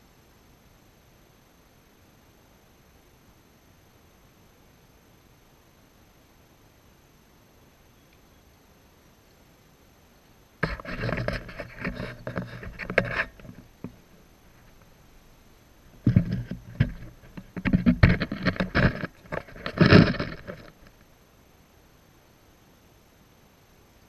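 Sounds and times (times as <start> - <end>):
camera handling rubbing: 10.6 - 14.0, 16.0 - 20.9
knocks against camera body: 16.0 - 20.9.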